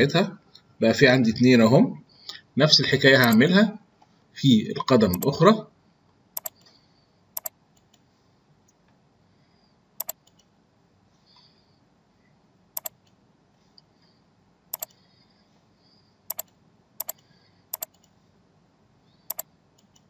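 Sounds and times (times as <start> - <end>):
computer mouse clicks: 3.2 - 3.5, 5.1 - 5.3, 6.4 - 6.8, 7.4 - 8.1, 10.0 - 10.5, 12.8 - 13.2, 14.7 - 15.0, 16.3 - 18.2, 19.3 - 20.0.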